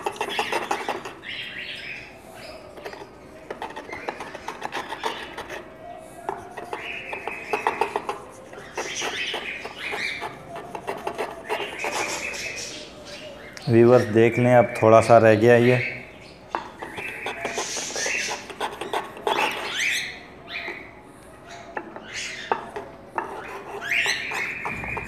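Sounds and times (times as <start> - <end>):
garlic rasping on wet grinding stone: 0.0 - 1.3, 2.7 - 5.7, 6.3 - 12.4, 16.8 - 20.0, 22.0 - 25.0.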